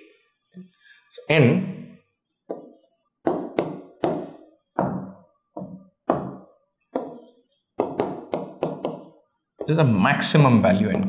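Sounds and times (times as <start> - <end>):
marker tapping on whiteboard: 2.5 - 9.8, 10.8 - 11.0.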